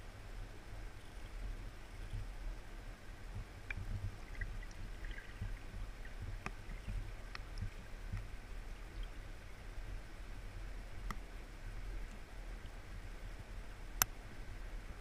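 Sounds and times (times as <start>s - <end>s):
muffled underwater water rumble: 0.0s - 15.0s
faint ticks: 3.3s - 8.3s, 11.0s - 11.3s, 12.0s - 12.8s, 14.0s - 14.2s.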